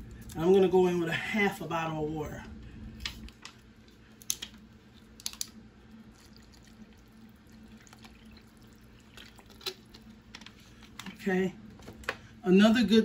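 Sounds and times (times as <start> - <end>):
water trickling into a bowl: 4.9 - 10.3.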